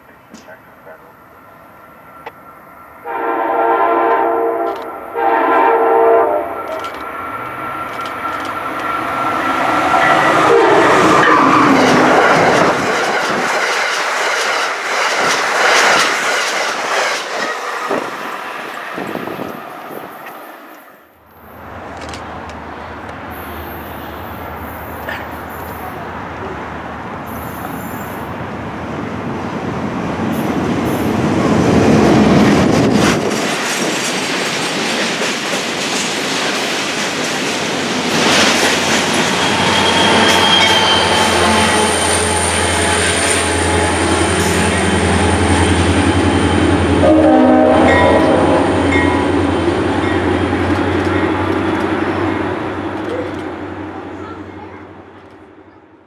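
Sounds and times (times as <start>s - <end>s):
train wheels rumbling and clicking: 0.0s - 1.0s, 4.1s - 5.2s, 6.5s - 20.4s, 21.3s - 25.9s, 30.0s - 47.1s, 47.8s - 55.6s
locomotive engine droning: 0.0s - 13.0s, 38.0s - 55.8s
high wheel squeal: 38.8s - 46.9s.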